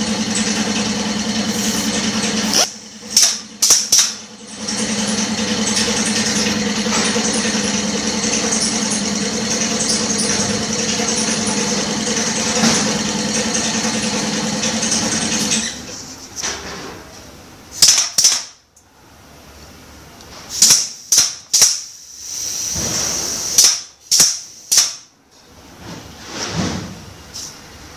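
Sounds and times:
air drill running with hiss: 0.0 - 3.3, 21.8 - 24.9
short bursts of hissing air: 1.4 - 3.2, 20.5 - 25.0.

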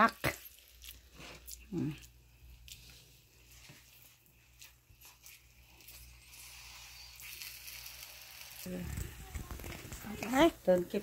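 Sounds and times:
faint frying sizzle in a pan: 2.8 - 11.0.

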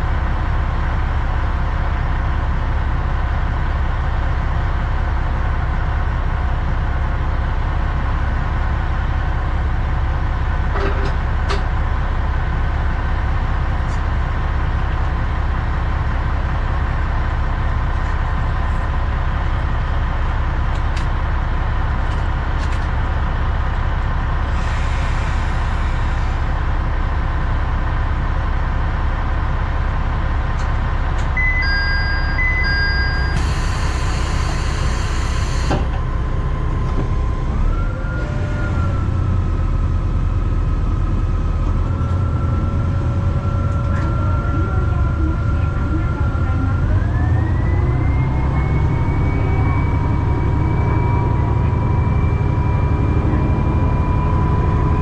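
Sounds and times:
diesel engine idling: 0.0 - 55.0
two-tone beeping: 31.4 - 35.8.

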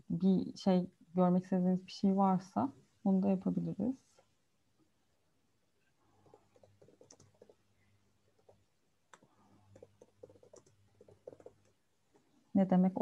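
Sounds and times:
computer keyboard typing: 6.2 - 7.6, 8.3 - 11.8.

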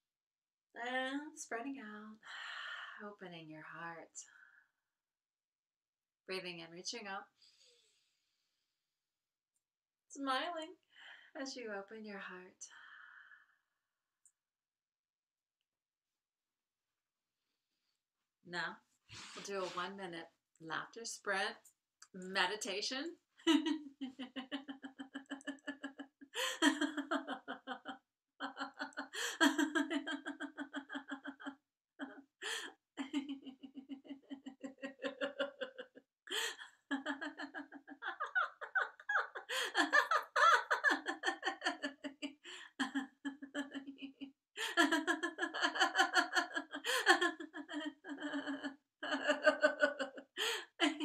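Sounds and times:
woman laughing heartily: 23.5 - 51.0.

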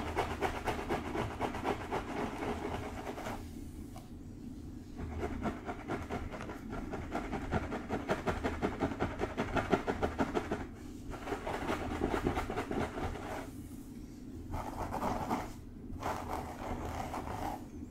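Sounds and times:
fingertips scratching hair: 14.5 - 17.7.

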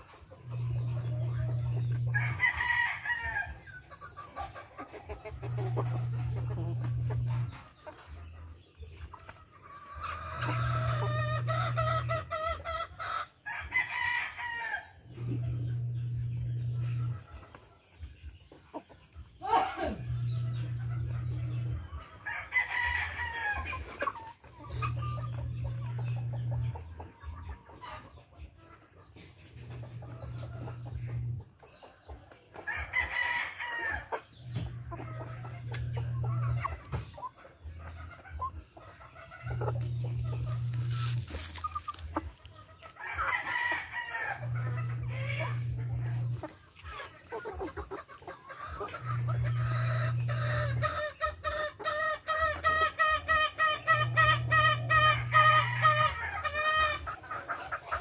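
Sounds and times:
chickens clucking: 0.0 - 58.0
low hum: 5.3 - 7.8, 15.1 - 17.5, 19.8 - 22.1, 24.6 - 27.0, 34.3 - 37.2, 39.0 - 42.9, 43.9 - 46.8
rooster crowing: 43.0 - 45.6.

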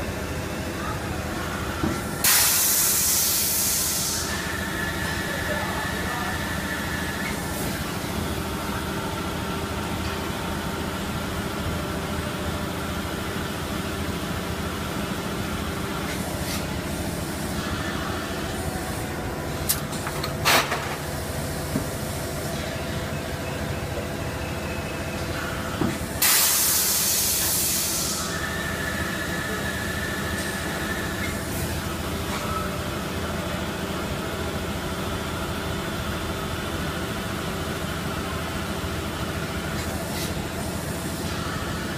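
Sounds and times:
loud hiss of air: 2.1 - 7.9, 16.0 - 19.8, 25.9 - 31.9, 39.8 - 41.9.

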